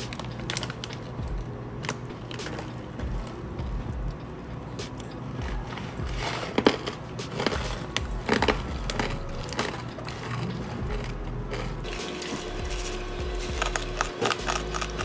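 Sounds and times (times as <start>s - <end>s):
steady low hum: 0.0s - 15.0s
crunchy snack being eaten: 4.9s - 15.0s.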